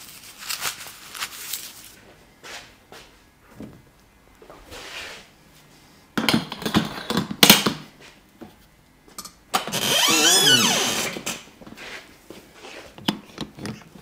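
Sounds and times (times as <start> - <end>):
chair mechanism squealing: 9.7 - 11.3.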